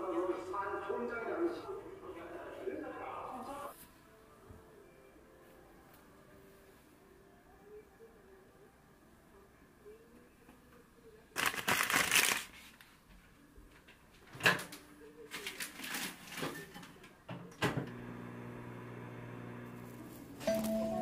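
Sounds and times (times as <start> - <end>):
steady appliance hum: 17.6 - 21.0.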